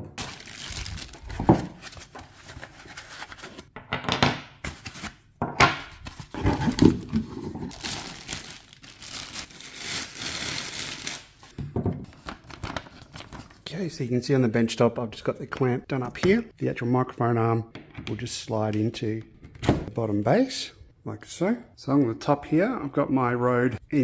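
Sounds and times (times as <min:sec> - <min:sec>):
plastic packaging crinkling: 0:00.2 - 0:03.6, 0:06.1 - 0:11.5
cardboard box rustling: 0:06.1 - 0:08.4.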